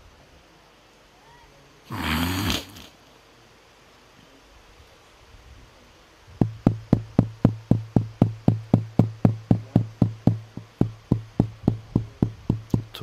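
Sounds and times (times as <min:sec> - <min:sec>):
steady thumping through sound system: 0:06.4 - 0:13.0.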